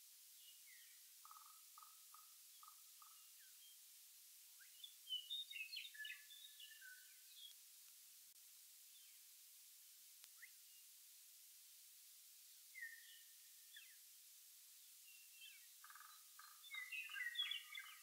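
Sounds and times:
bird chirps and whistles: 0:12.8 - 0:13.2.

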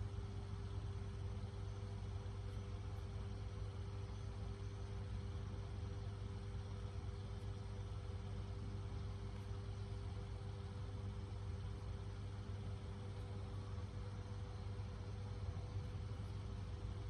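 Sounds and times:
faint steady tones: 0:00.0 - 0:17.0
low mechanical hum: 0:00.0 - 0:17.0.

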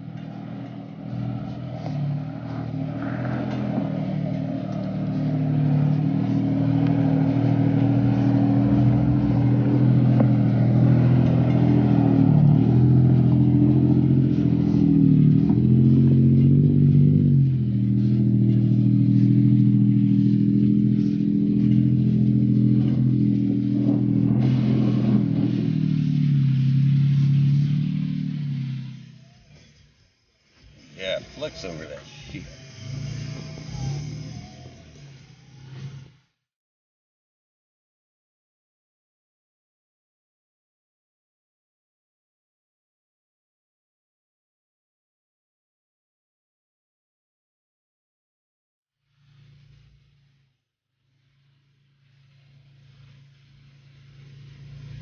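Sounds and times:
truck engine pulling at low revs: 0:00.0 - 0:36.4, 0:49.1 - 0:55.0.

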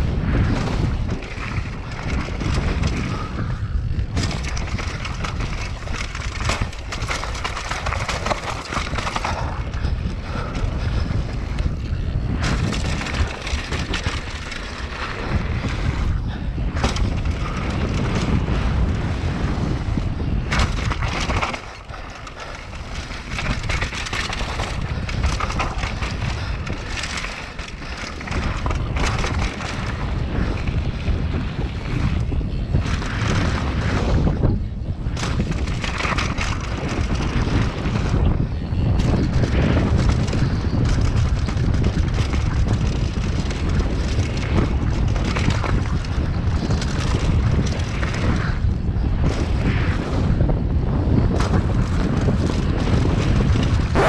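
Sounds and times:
bike rattling: 0:00.0 - 0:54.0
wind on microphone: 0:00.0 - 0:54.0
bike knocking over wooden planks: 0:04.1 - 0:11.0, 0:11.6 - 0:18.3, 0:20.4 - 0:30.7.

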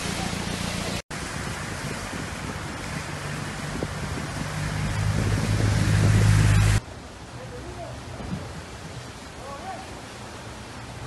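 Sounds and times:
truck engine hum: 0:00.0 - 0:06.8
water rushing: 0:00.0 - 0:11.0
wind: 0:00.0 - 0:11.0.

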